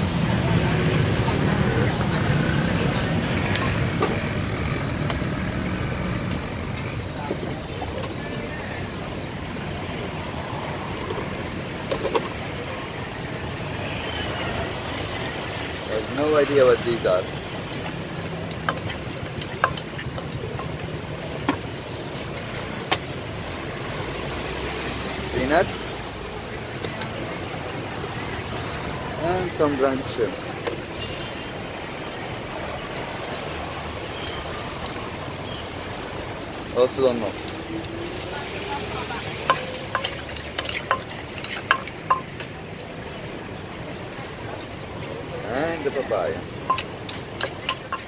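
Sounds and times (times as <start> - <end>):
street traffic: 0.0 - 48.0
utensils clinking on clay mortar: 16.1 - 21.7, 39.2 - 42.9, 45.9 - 48.0
utensils knocking clay mortar: 39.4 - 42.5, 46.6 - 48.0.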